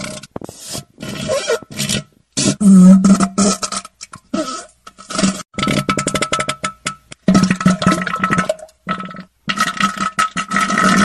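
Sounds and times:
wet sputtering farts: 7.3s - 11.0s.

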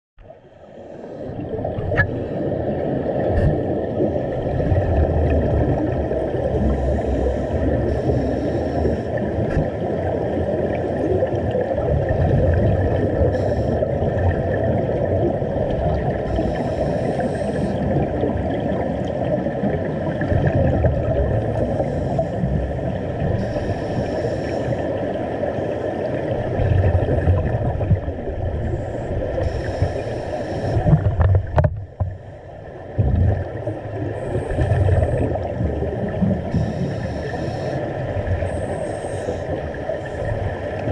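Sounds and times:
underwater bubbles gurgling: 0.2s - 40.9s
bubbling hiss: 13.1s - 14.2s, 16.2s - 18.3s, 20.8s - 25.0s, 28.5s - 31.1s, 34.0s - 40.2s.

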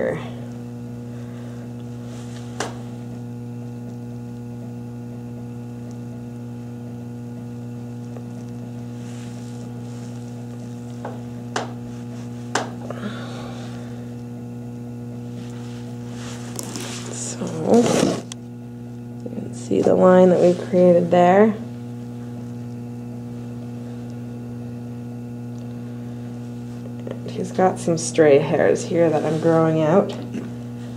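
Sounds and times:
mains hum: 0.0s - 30.9s
hair rustling: 1.6s - 3.4s, 8.3s - 14.0s, 15.1s - 18.4s.

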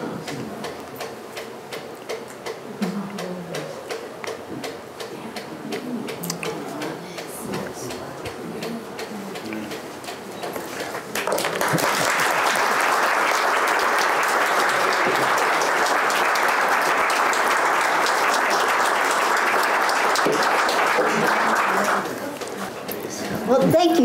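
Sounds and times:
audience applauding: 10.8s - 22.6s.

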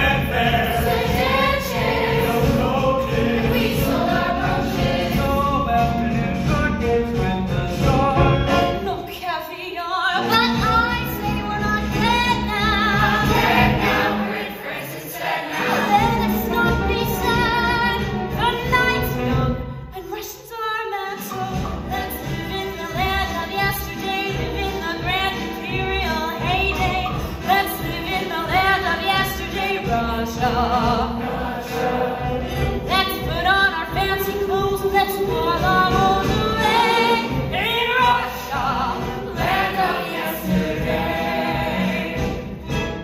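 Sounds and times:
cast singing together: 0.0s - 6.5s, 12.3s - 19.3s, 27.7s - 43.0s
instrumental accompaniment: 0.0s - 9.2s, 10.2s - 20.0s, 21.2s - 43.0s.

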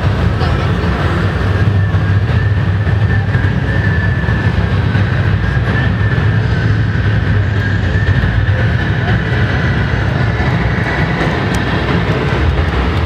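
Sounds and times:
model trucks engine rumble: 0.0s - 13.0s.

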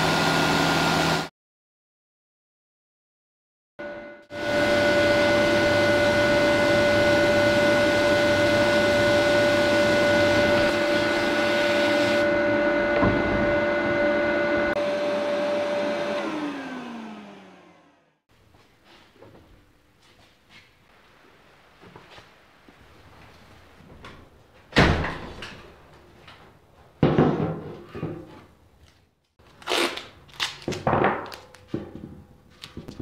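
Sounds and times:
extractor motor humming: 4.3s - 18.2s.

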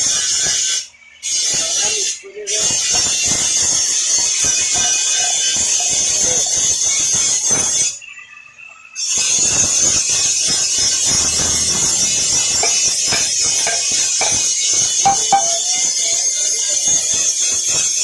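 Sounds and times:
steady high workshop hiss: 9.5s - 15.9s
steel tools clanking on iron: 10.6s - 16.0s
hammer strikes: 11.1s - 15.9s.

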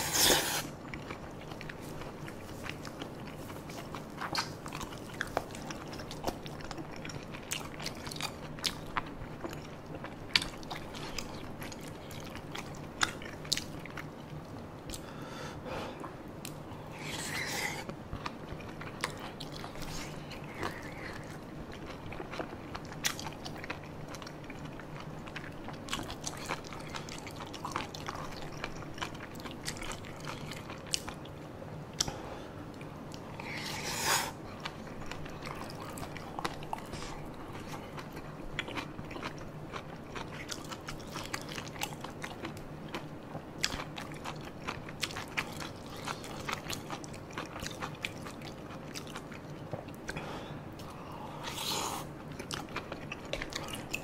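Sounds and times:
wet chewing mouth sounds: 32.8s - 50.2s, 50.8s - 54.0s.

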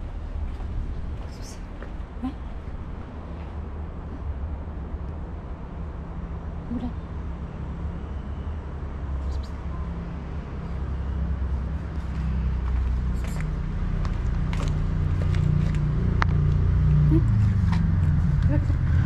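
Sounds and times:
vehicle engine running: 10.6s - 19.0s.

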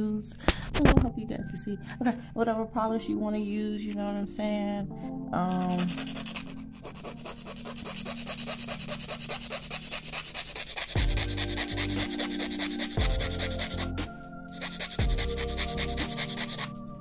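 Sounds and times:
nail file scratching: 5.5s - 16.8s.

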